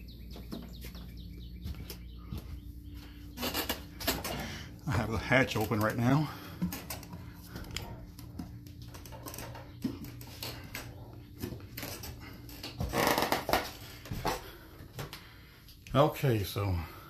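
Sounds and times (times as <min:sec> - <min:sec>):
steady low hum: 0:00.0 - 0:17.0
footfalls on wooden steps: 0:00.2 - 0:02.6.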